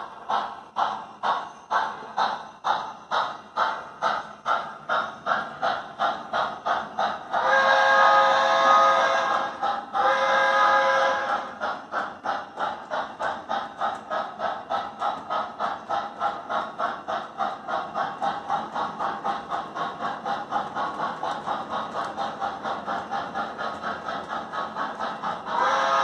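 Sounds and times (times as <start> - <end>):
steam locomotive chuffs: 0.0 - 26.0
steam whistle blowing: 7.4 - 11.6, 25.5 - 26.0.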